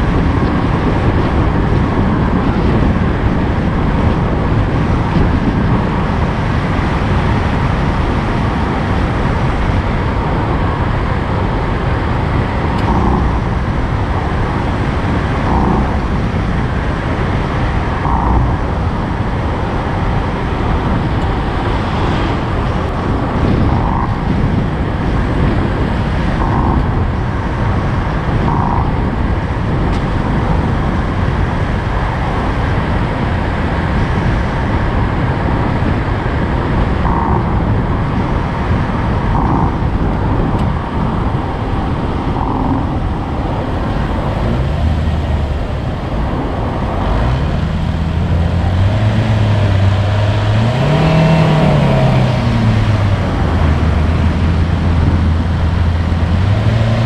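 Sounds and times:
vehicle road noise: 0.0 - 57.0.

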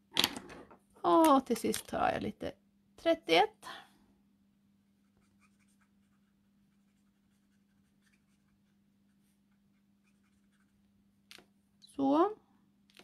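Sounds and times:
marker scratching on paper: 5.0 - 10.8.

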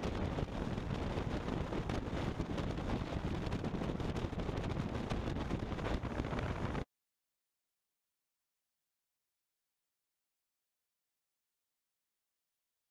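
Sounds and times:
wind rush: 0.0 - 6.9.

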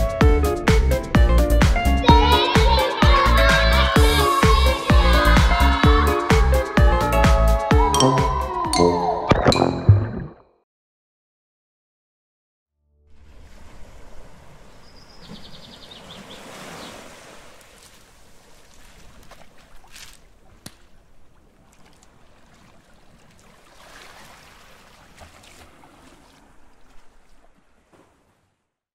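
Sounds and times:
ocean waves washing: 13.1 - 28.4.

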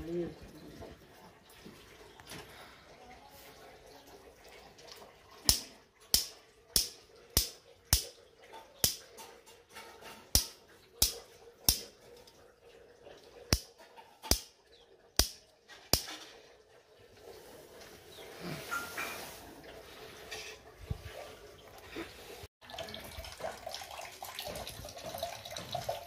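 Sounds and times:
sharp hand clicks or slaps: 15.2 - 16.1.

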